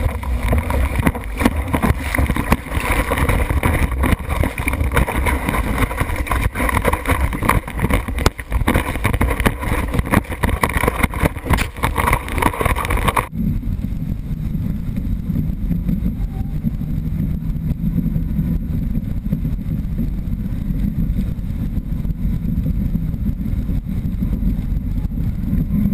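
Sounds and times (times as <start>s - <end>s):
board slapping water: 0.0s - 13.3s
low wind rumble: 0.0s - 25.9s
rushing wind and water: 0.0s - 25.9s.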